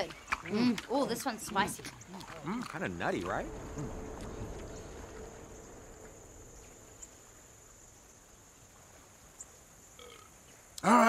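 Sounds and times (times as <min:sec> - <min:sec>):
low hush: 0:02.0 - 0:09.4
high-pitched insect drone: 0:02.5 - 0:10.2.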